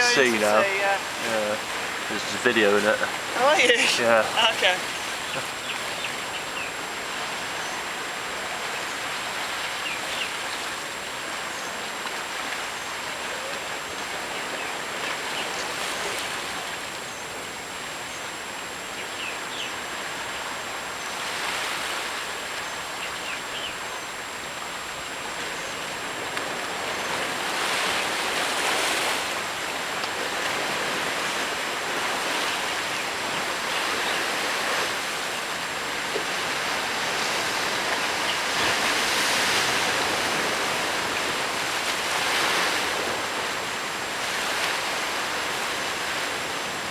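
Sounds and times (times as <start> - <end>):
sea waves washing against rocks: 25.4 - 46.9.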